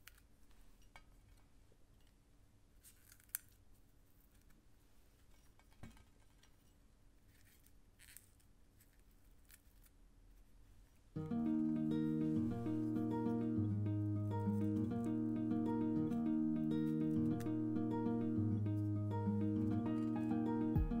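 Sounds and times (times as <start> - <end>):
plucked-string music: 11.2 - 21.0.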